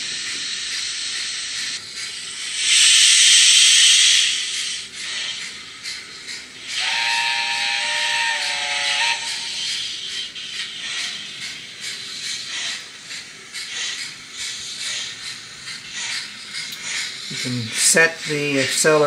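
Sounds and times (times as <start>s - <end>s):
steam hiss: 0.0s - 19.0s
model train chime whistle: 6.7s - 9.8s.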